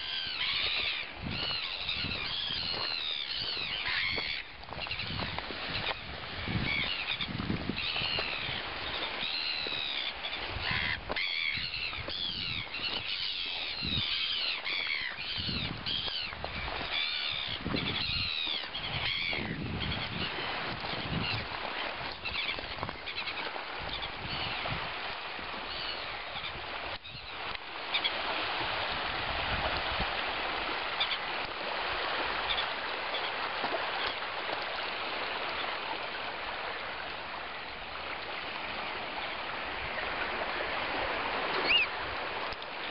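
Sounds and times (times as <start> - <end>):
flock of birds calling: 0.0 - 24.7, 25.7 - 28.2, 41.6 - 42.0
shallow water flowing over pebbles: 0.0 - 42.9.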